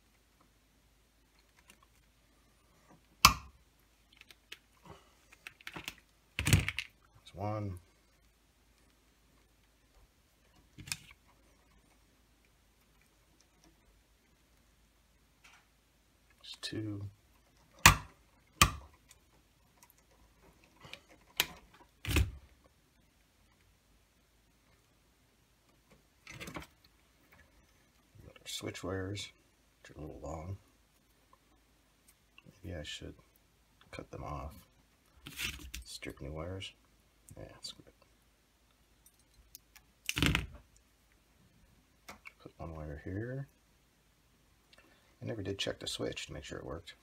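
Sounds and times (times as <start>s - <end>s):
small clicks and ticks: 3.8s - 7.2s.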